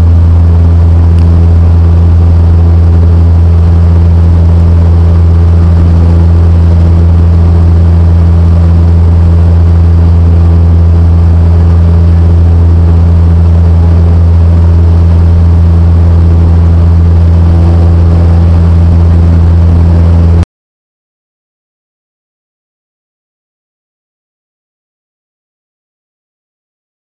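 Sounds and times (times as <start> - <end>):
light aircraft engine droning: 0.0 - 20.4.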